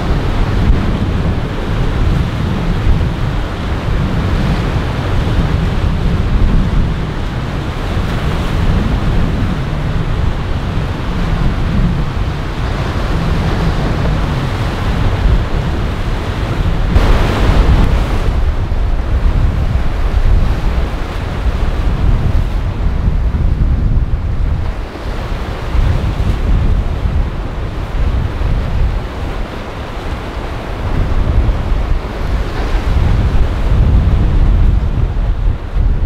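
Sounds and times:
waves and boat wake: 0.0 - 36.0
wind buffeting microphone: 0.0 - 36.0.

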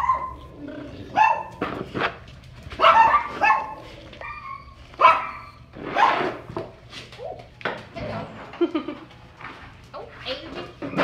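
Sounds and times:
dog barking: 0.0 - 0.4, 1.1 - 1.6, 2.8 - 3.8, 5.0 - 6.3.

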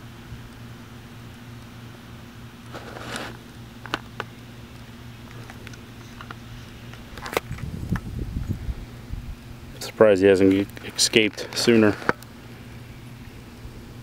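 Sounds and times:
steady low hum: 0.0 - 14.0
soft rustle: 2.7 - 3.5.

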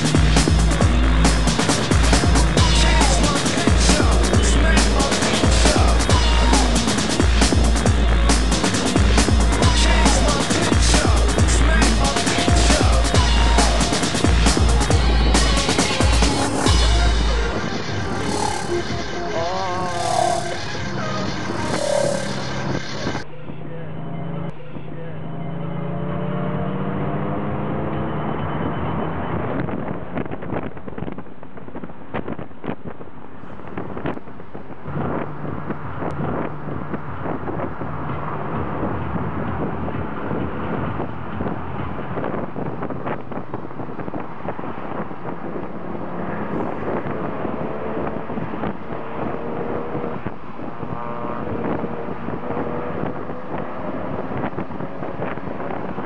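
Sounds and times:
car engine running: 0.0 - 56.0
road and wind noise: 0.0 - 56.0
wind buffeting microphone: 29.3 - 56.0.

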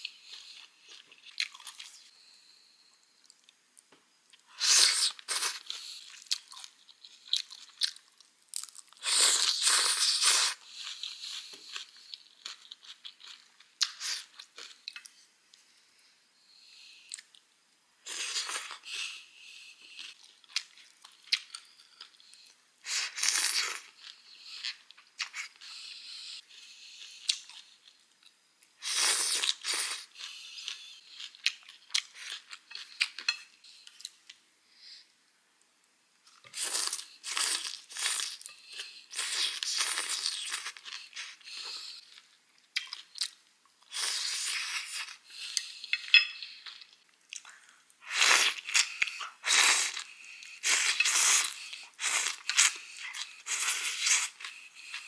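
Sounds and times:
vegetables crunched and chewed: 36.2 - 55.0
noodles slurped: 48.1 - 55.0.

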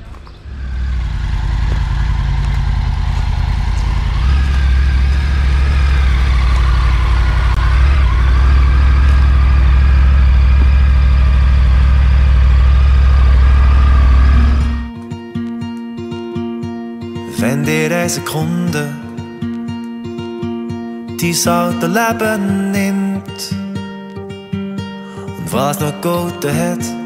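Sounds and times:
motorcycle engine idling and pulling away: 0.0 - 14.9.

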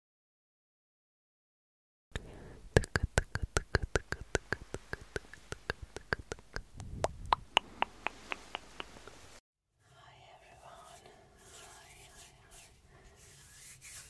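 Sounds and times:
low rumble: 6.7 - 8.1.

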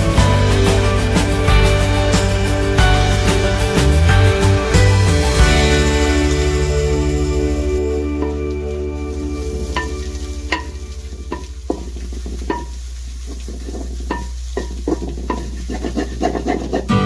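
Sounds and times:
vegetables sizzling in a wok: 5.1 - 16.9
wooden spoon knocking against pan: 13.4 - 16.8.

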